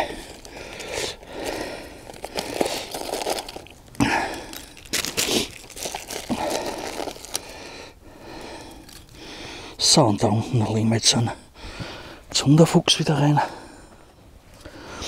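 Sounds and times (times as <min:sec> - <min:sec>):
plastic packet crinkling: 0:00.2 - 0:07.7.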